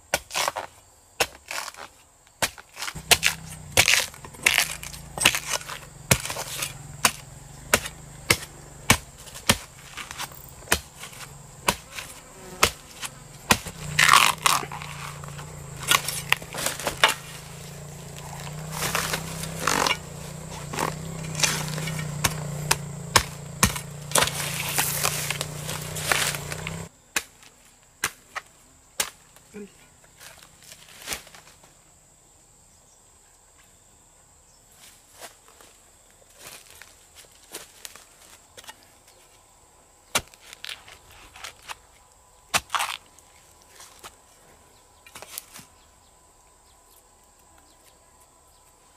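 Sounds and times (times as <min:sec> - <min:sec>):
chopping strikes: 0:00.1 - 0:29.2, 0:42.5 - 0:43.1
steady low hum: 0:02.9 - 0:26.9.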